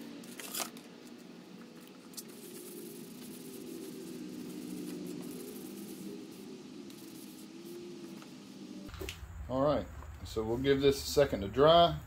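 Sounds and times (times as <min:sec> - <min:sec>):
low steady hum: 0:00.0 - 0:12.0
cloth rag rubbing surface: 0:01.9 - 0:08.9.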